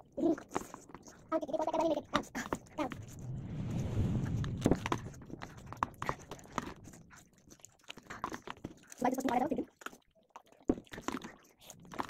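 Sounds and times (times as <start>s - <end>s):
people slurping and chewing noodles: 0.0s - 2.8s, 5.4s - 12.0s
noisy rustle: 2.8s - 7.5s.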